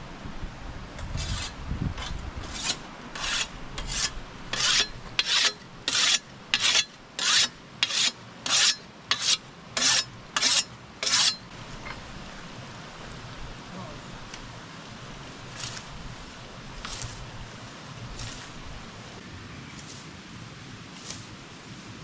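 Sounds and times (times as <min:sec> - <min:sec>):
rasping scrape strokes: 0:01.0 - 0:11.5, 0:16.8 - 0:17.2.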